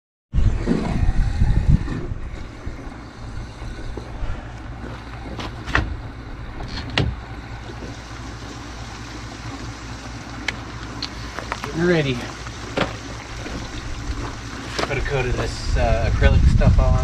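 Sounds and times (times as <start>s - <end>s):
wind rumbling on microphone: 0.3s - 7.8s, 12.7s - 17.0s.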